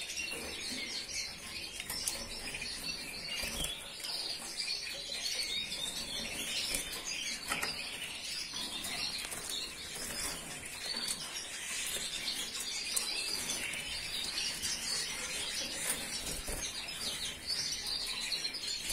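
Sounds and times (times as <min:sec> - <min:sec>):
canaries chirping: 0:00.0 - 0:18.9.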